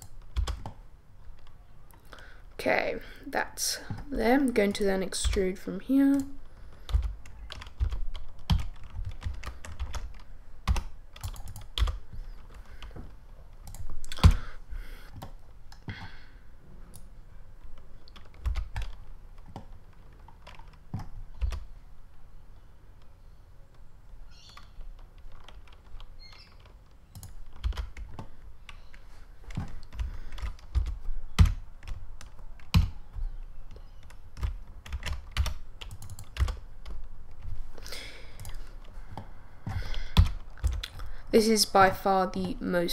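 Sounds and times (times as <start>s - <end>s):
keyboard keys tapping: 0.0s - 2.0s, 3.8s - 14.5s, 16.9s - 21.7s, 23.7s - 37.6s, 38.4s - 41.0s.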